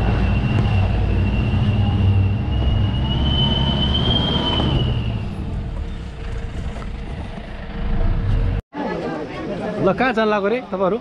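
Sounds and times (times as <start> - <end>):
high-pitched squeal: 0.0 - 6.1.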